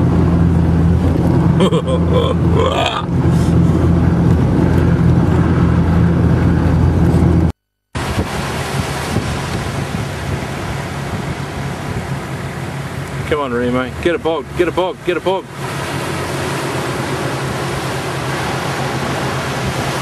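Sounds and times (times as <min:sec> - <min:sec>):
engine droning in cabin: 0:00.0 - 0:20.0
surf: 0:00.0 - 0:20.0
wind rushing: 0:03.1 - 0:12.7.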